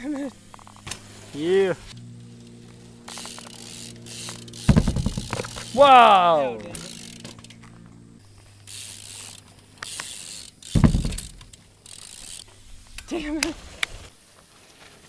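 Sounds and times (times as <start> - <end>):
tyres hissing over dirt: 0.0 - 2.0
bike freewheel ticking: 0.0 - 14.1
heavy thump: 4.7 - 5.5, 10.8 - 11.4
person shouting: 5.7 - 6.8.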